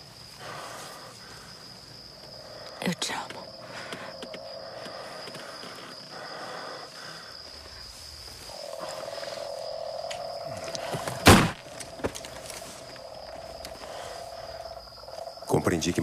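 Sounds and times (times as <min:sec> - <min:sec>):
frogs trilling: 0:00.0 - 0:16.0
high insect drone: 0:00.0 - 0:16.0
gunshot: 0:11.2 - 0:11.6.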